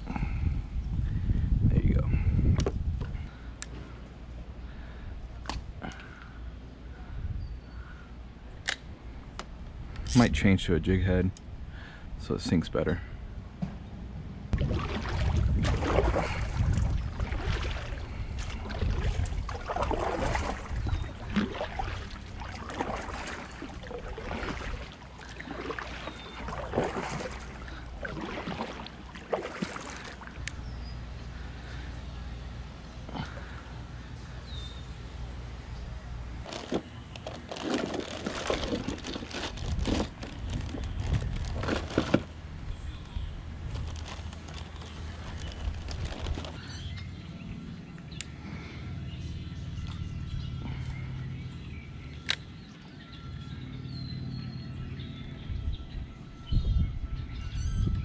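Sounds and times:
steady low rumble: 0:00.0 - 0:58.0
water sloshing against kayak: 0:14.6 - 0:31.0, 0:36.4 - 0:42.4.

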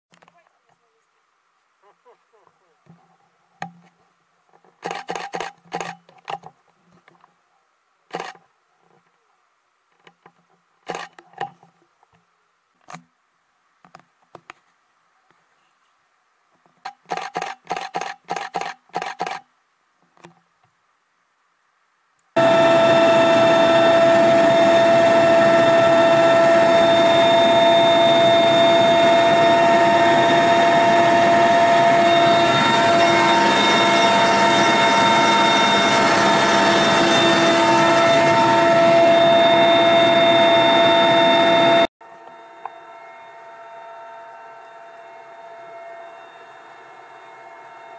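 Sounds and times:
scattered short sounds: 0:04.8 - 0:06.5, 0:08.1 - 0:08.4, 0:10.8 - 0:11.6, 0:16.8 - 0:19.5
helicopter turbine and rotor noise: 0:22.4 - 0:47.9
steady whining tones: 0:22.4 - 0:47.9.

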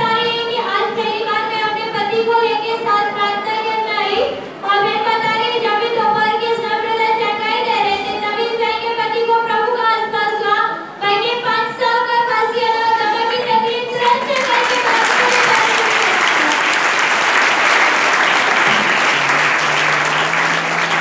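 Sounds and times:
crowd applauding: 0:14.0 - 0:21.0.

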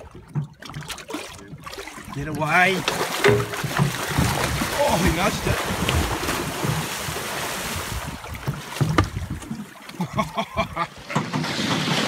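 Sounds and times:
water splashing against boat: 0:00.0 - 0:12.0
sharp knocks: 0:02.8 - 0:04.6
wind on microphone: 0:04.2 - 0:09.6.

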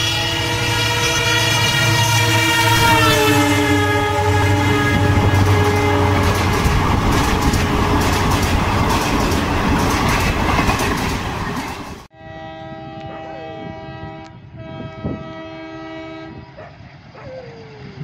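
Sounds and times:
train horn: 0:00.0 - 0:07.8, 0:12.1 - 0:16.7
train wheels rumbling and clattering: 0:04.4 - 0:12.1.

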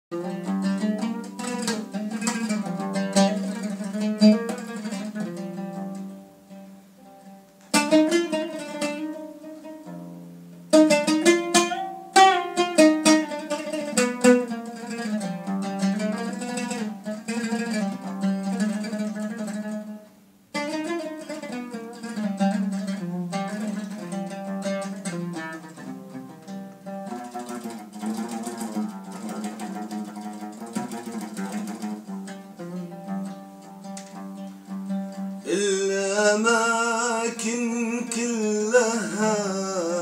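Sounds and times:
oud melody: 0:00.1 - 0:40.0.

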